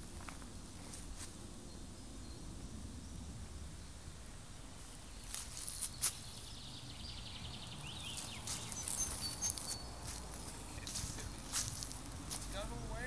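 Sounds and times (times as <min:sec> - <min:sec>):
bird chirps: 0:05.0 - 0:11.8
footsteps on dry leaves: 0:05.2 - 0:06.5, 0:07.9 - 0:13.0.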